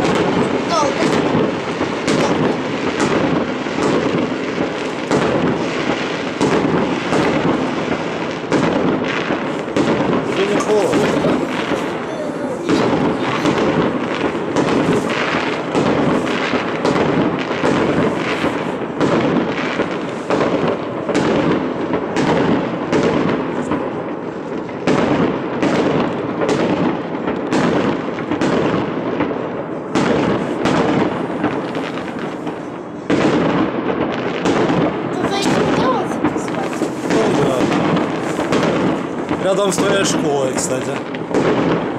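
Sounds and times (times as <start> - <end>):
fireworks bursting with sharp bangs: 0.0 - 41.9.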